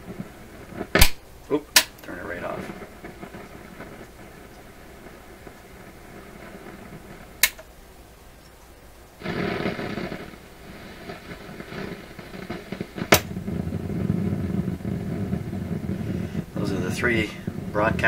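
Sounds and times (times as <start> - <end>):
radio receiver noise from speaker: 0.0 - 7.8, 8.4 - 18.0
sharp click: 1.8 - 2.1, 7.4 - 7.7.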